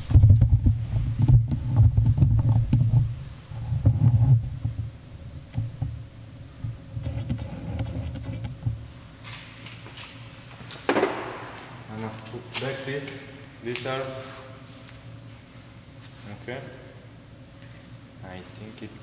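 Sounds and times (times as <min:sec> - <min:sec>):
microphone handling rumble: 0:00.0 - 0:08.9.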